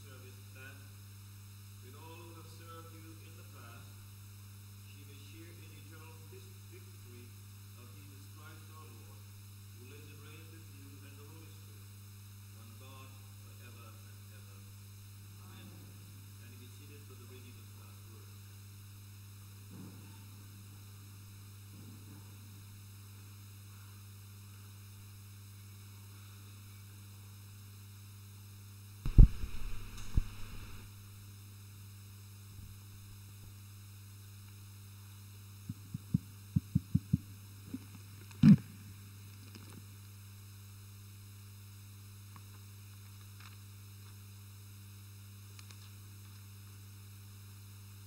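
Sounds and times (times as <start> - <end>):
electrical hum from sound system: 0.0 - 48.0
microphone being bumped: 29.0 - 30.8, 35.7 - 38.7.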